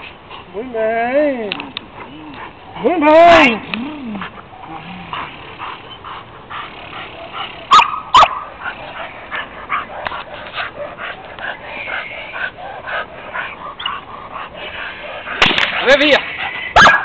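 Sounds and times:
dog yipping and whining: 7.7s - 8.4s, 16.8s - 17.0s
dog barking: 7.7s - 8.5s, 16.8s - 17.0s.

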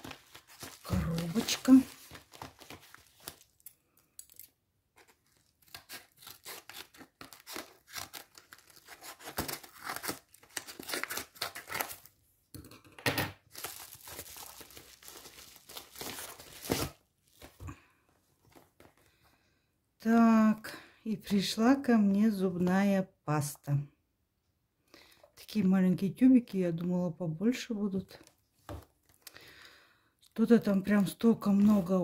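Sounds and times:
paper tearing and crinkling: 0.0s - 3.6s, 5.0s - 12.1s, 13.5s - 17.5s.

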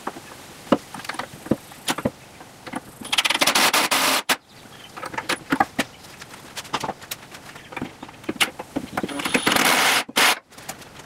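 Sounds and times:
handling clicks and knocks: 0.0s - 3.5s, 4.8s - 9.8s
impact driver driving a screw: 3.1s - 4.4s, 9.2s - 10.4s.

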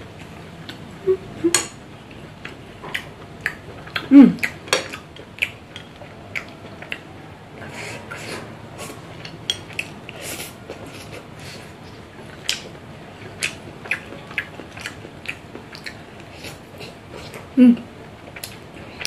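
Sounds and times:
person humming: 1.0s - 1.6s, 17.6s - 17.8s.

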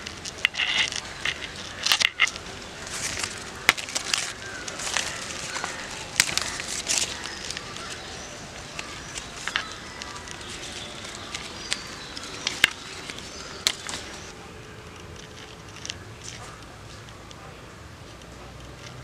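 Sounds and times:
plant stems snapping: 0.0s - 14.3s
leaves and twigs rustling: 0.0s - 19.0s.

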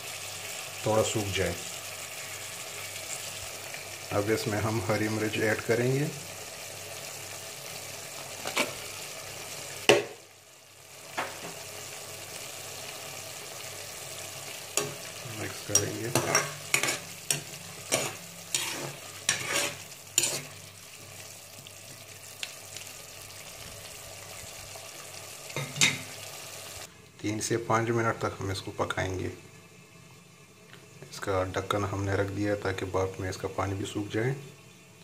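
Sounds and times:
food sizzling in a pot: 0.0s - 35.0s
spoon scraping a pot: 15.7s - 20.6s.

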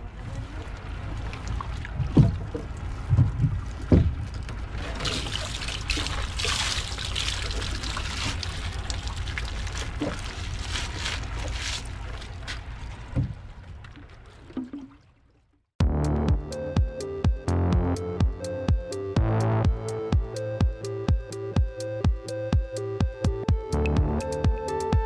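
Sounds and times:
steady low rumble: 0.0s - 14.2s, 15.8s - 25.0s
water splashing and trickling: 0.0s - 15.7s
dull knocks: 2.0s - 4.6s.

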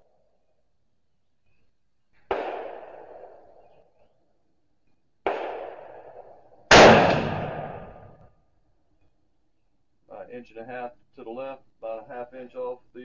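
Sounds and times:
quiet gunshots: 2.2s - 3.9s, 5.2s - 8.2s
loud rifle shot ringing out: 2.3s - 3.4s, 5.2s - 8.2s.

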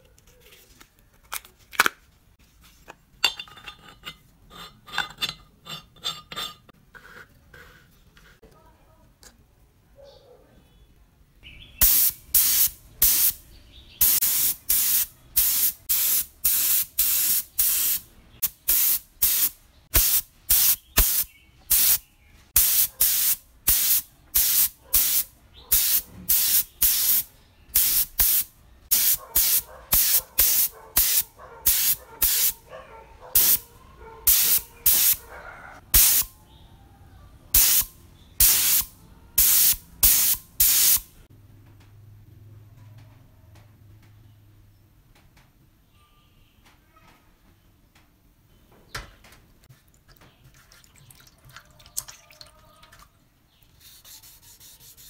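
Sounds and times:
spray gun hissing bursts: 11.8s - 13.4s, 14.0s - 18.0s, 18.7s - 22.0s, 22.6s - 27.2s, 27.8s - 32.6s, 34.3s - 35.2s, 37.6s - 41.0s.

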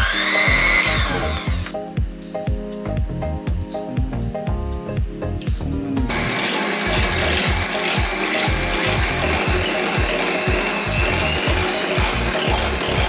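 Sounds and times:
electric hand mixer whining: 0.0s - 1.7s, 6.1s - 13.0s
background music with beat: 0.0s - 13.0s.

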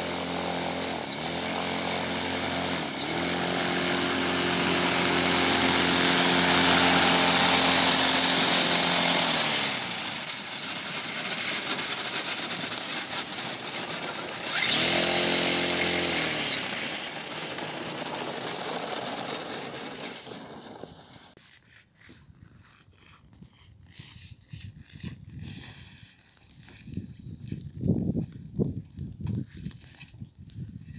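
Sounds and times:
aerosled propeller and motor whine: 0.0s - 21.4s.

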